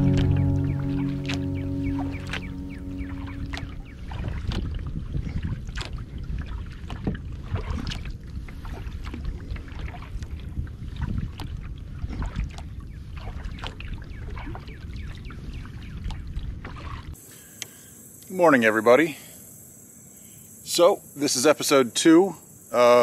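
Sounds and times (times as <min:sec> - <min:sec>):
water dripping: 0:00.0 - 0:04.8
paddle splashing through water: 0:00.0 - 0:17.2
wind rumble on microphone: 0:00.0 - 0:17.2.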